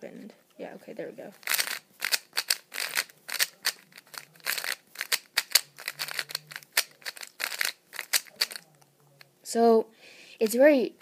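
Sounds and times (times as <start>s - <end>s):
plastic puzzle cube clicking: 1.4s - 8.7s.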